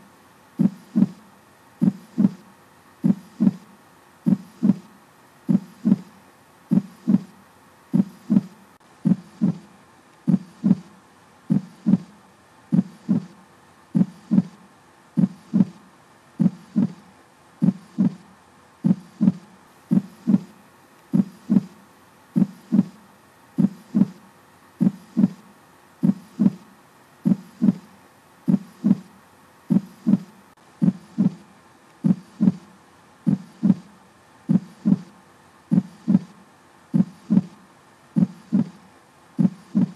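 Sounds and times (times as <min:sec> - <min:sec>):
faint steady hum: 0:00.0 - 0:39.9
heartbeat thumps: 0:00.6 - 0:01.2, 0:01.8 - 0:02.4, 0:03.0 - 0:03.6, 0:04.3 - 0:04.9, 0:05.5 - 0:06.1, 0:06.7 - 0:07.3, 0:07.9 - 0:09.7, 0:10.3 - 0:10.9, 0:11.5 - 0:12.1, 0:12.7 - 0:13.4, 0:14.0 - 0:14.6, 0:15.2 - 0:15.8, 0:16.4 - 0:17.0, 0:17.6 - 0:18.2, 0:18.8 - 0:21.8, 0:22.4 - 0:23.0, 0:23.6 - 0:24.2, 0:24.8 - 0:25.4, 0:26.0 - 0:26.6, 0:27.2 - 0:27.9, 0:28.5 - 0:29.1, 0:29.7 - 0:31.4, 0:32.0 - 0:32.6, 0:33.3 - 0:33.9, 0:34.5 - 0:35.1, 0:35.7 - 0:36.3, 0:36.9 - 0:37.6, 0:38.2 - 0:38.8, 0:39.4 - 0:39.9.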